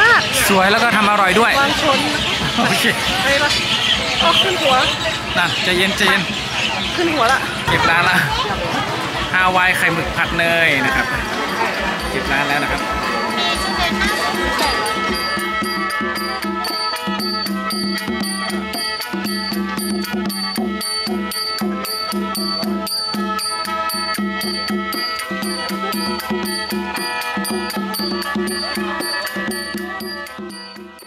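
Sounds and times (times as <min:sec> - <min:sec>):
music with steady beat: 0:09.1 - 0:31.0.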